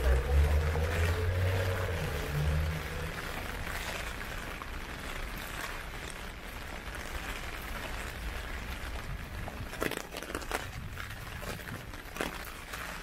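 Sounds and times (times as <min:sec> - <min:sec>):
heavy rain hissing: 0:00.0 - 0:05.4
low rumble: 0:00.0 - 0:05.8.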